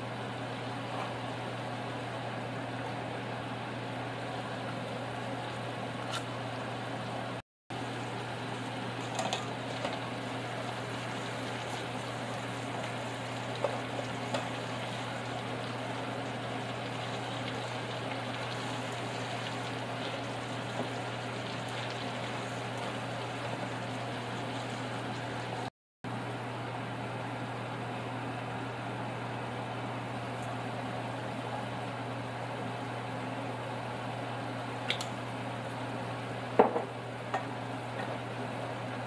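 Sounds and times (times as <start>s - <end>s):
tongs clicking in frying pan: 34.9s - 35.2s.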